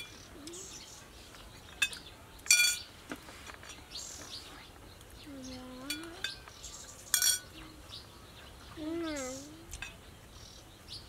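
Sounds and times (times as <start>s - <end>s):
birds chirping: 0.0s - 11.0s
spoons clinking on ceramic plates: 1.8s - 2.9s, 7.1s - 7.5s.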